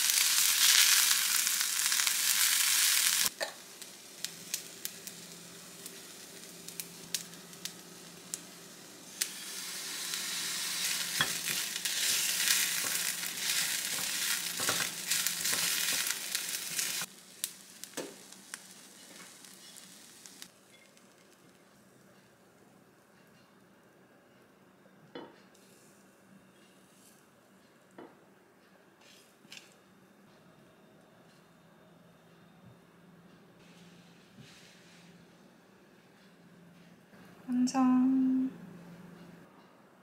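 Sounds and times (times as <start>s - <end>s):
food sizzling in a frying pan: 0.0s - 21.6s.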